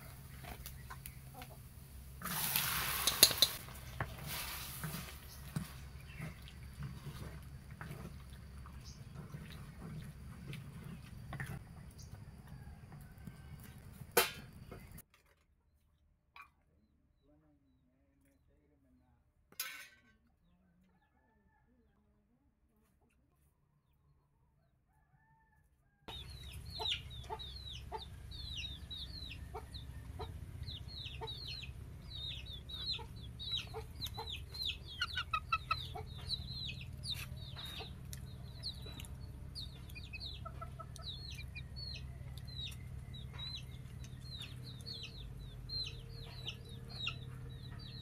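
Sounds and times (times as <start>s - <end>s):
chickens clucking: 0.0s - 15.0s, 26.1s - 48.0s
chicks peeping: 26.1s - 48.0s.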